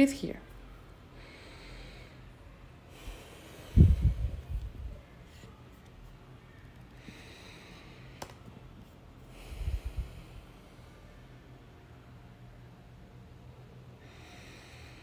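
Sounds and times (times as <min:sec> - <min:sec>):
deep breathing: 0:00.8 - 0:05.5, 0:06.5 - 0:08.5, 0:09.1 - 0:11.6, 0:13.9 - 0:15.0.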